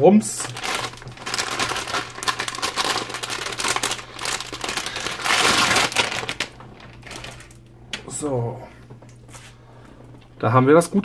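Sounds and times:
plastic packaging crinkling: 0:00.4 - 0:07.6.

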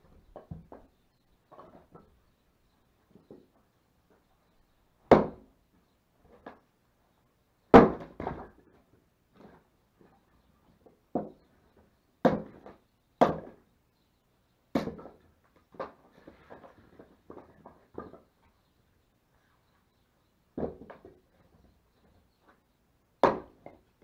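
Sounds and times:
axe chopping wood: 0:05.1 - 0:05.5, 0:07.7 - 0:08.5, 0:12.2 - 0:13.6, 0:14.7 - 0:15.2, 0:23.2 - 0:23.8.

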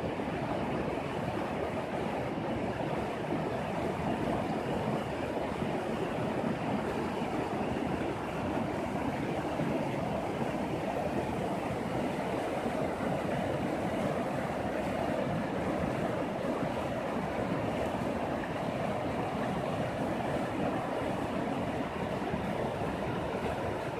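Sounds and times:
river rushing over stones: 0:08.0 - 0:23.9.

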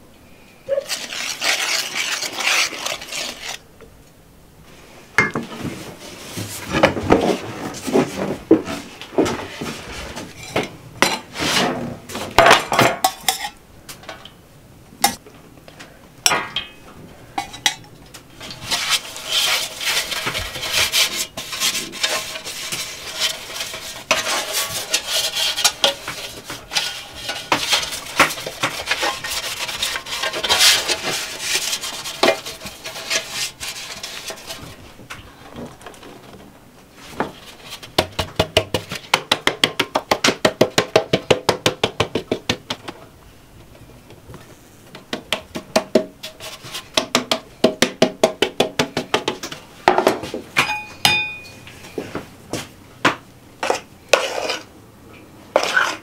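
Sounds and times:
metal baking trays scraping: 0:00.7 - 0:03.6, 0:05.5 - 0:12.4, 0:18.3 - 0:36.0, 0:53.6 - 0:54.7, 0:55.5 - 0:56.0
rapid tapping on tray: 0:38.0 - 0:42.8.

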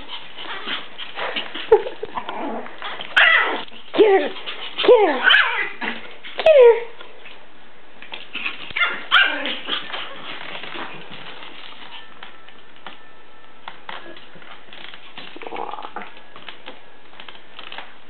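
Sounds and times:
dogs barking and yipping: 0:02.9 - 0:05.8, 0:08.4 - 0:12.1.

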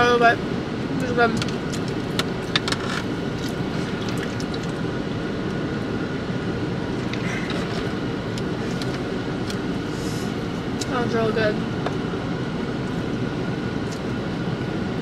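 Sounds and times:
car engine and fan hum: 0:00.0 - 0:15.0.

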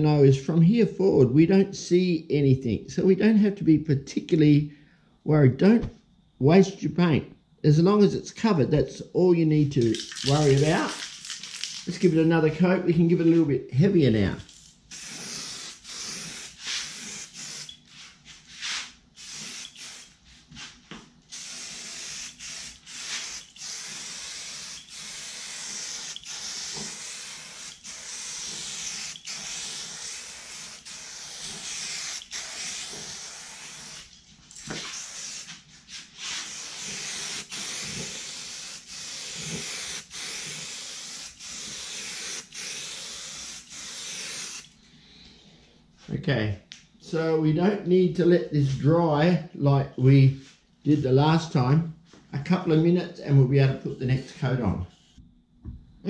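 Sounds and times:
spray paint can hissing: 0:09.8 - 0:12.3, 0:14.5 - 0:20.7, 0:21.3 - 0:44.7.

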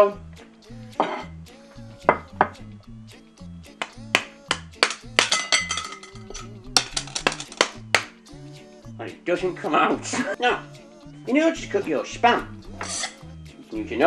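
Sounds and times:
background music with stepping bass: 0:00.0 - 0:14.0.

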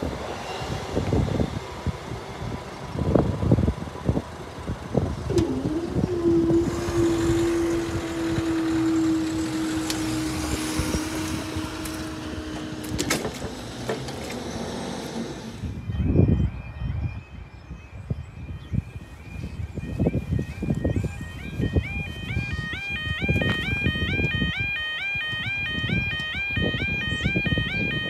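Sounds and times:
wind gusts on microphone: 0:00.0 - 0:28.0
barrier mechanism humming: 0:04.6 - 0:15.8.

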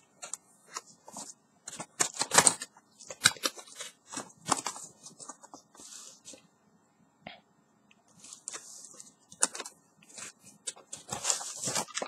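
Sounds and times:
cardboard scraping and rustling: 0:08.2 - 0:12.0.

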